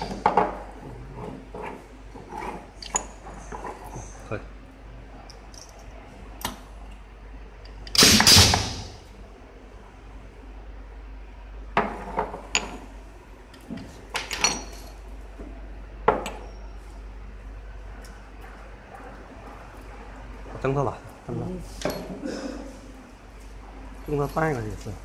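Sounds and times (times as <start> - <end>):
pneumatic machine clunk with air rush: 7.9 - 9.0.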